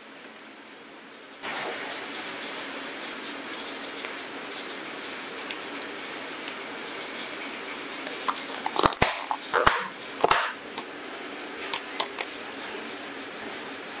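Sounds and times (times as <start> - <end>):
plastic containers clicking and crinkling: 8.1 - 10.9, 11.8 - 12.3.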